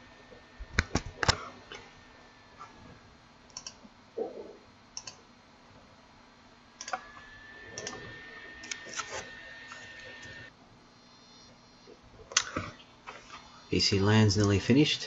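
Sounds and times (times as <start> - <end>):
computer mouse clicking: 3.5 - 3.8, 5.0 - 5.2, 7.8 - 8.0.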